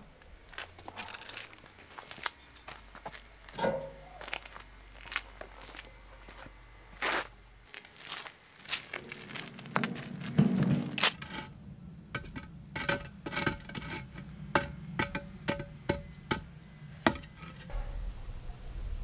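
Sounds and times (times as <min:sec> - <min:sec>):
wheelbarrow rumbling over ground: 0:08.7 - 0:17.9
concrete blocks knocking together: 0:12.2 - 0:16.5, 0:17.1 - 0:17.7.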